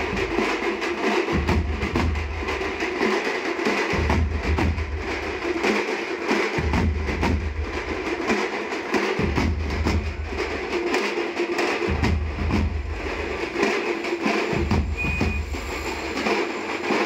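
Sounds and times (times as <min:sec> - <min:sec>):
bass drums beating: 0:11.9 - 0:13.1, 0:14.6 - 0:15.7.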